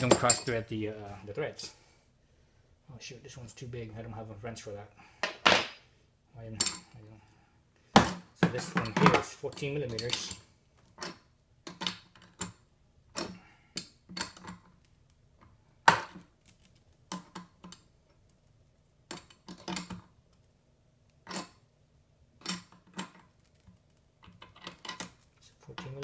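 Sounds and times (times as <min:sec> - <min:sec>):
wrench clinking on metal fitting: 0:08.7 - 0:10.4.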